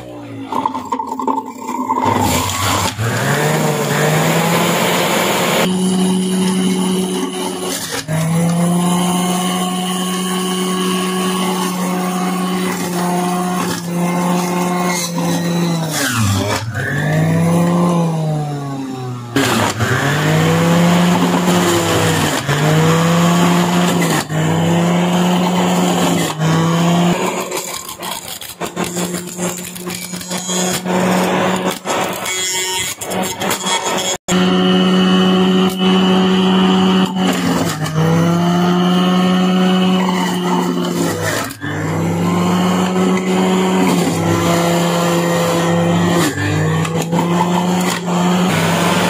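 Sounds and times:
electric juicer motor: 0.5 - 49.0.

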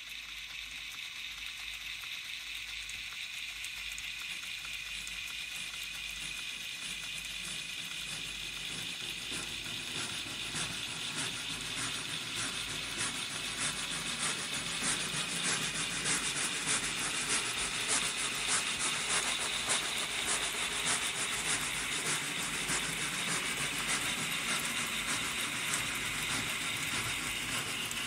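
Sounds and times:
steam hissing: 6.3 - 28.0.

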